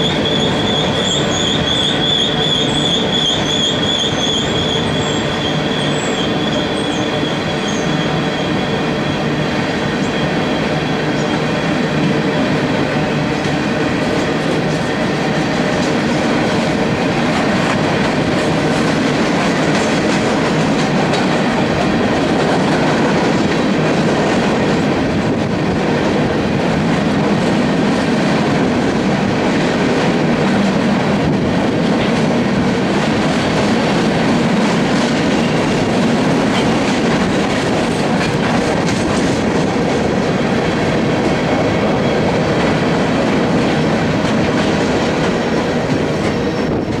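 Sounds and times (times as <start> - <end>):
freight train wheels rumbling on rails: 0.0 - 47.0.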